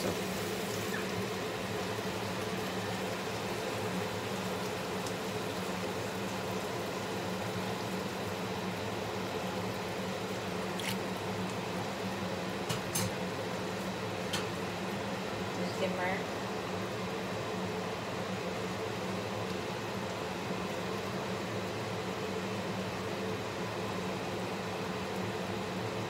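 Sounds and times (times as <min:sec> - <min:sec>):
food simmering in a wok: 0:00.0 - 0:26.0
range hood fan humming: 0:00.0 - 0:26.0.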